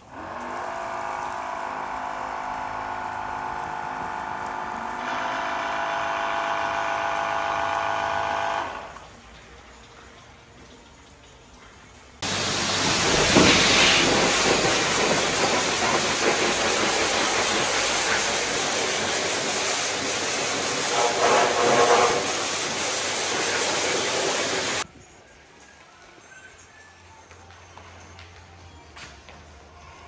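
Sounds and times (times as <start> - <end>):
pressure washer spraying water: 0.0 - 9.0, 12.2 - 24.8.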